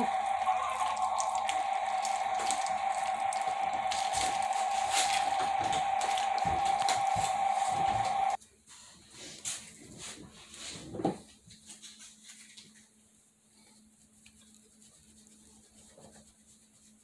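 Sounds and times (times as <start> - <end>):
steady hum: 0.0 - 8.4
wet squishing and crinkling: 0.0 - 8.4.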